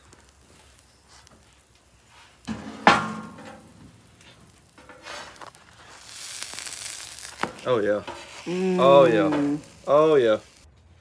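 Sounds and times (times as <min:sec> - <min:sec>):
sandwiches sizzling on griddle: 0:00.0 - 0:10.7
skillet clanking on griddle: 0:02.5 - 0:03.9, 0:04.6 - 0:05.5.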